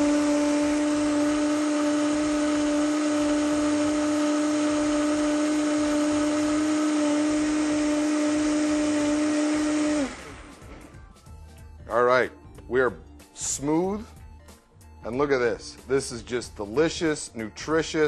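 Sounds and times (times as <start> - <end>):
blender motor running: 0.0 - 11.2.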